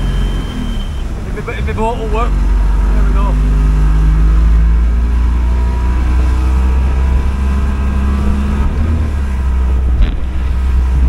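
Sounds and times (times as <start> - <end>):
outboard motor at speed: 0.0 - 11.0
water rushing: 0.0 - 11.0
wind: 0.0 - 11.0
thump: 10.0 - 10.3.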